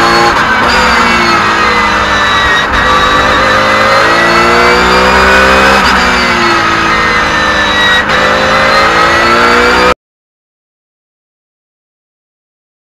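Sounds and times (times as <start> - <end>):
race car engine accelerating: 0.0 - 10.0.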